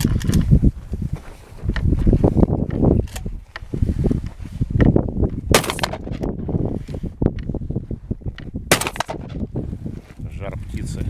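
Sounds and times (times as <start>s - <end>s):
shotgun shots: 5.5s - 6.3s, 8.7s - 9.4s.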